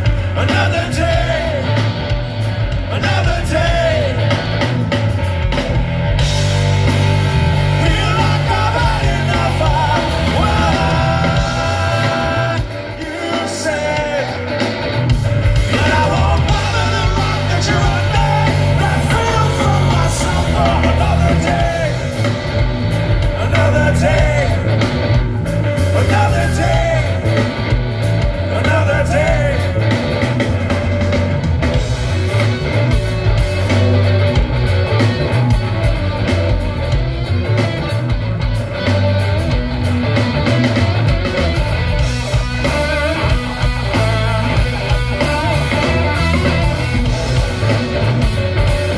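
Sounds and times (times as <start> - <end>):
person singing lead vocal: 0.0 - 4.7, 7.7 - 22.5, 23.1 - 25.1, 25.8 - 27.7, 28.3 - 30.2
bass guitar: 0.0 - 48.9
drums: 0.0 - 48.9
electric guitars: 0.0 - 48.9.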